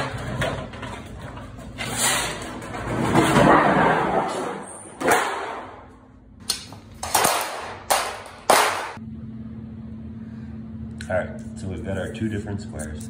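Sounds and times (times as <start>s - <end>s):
steady low hum: 5.7s - 13.0s.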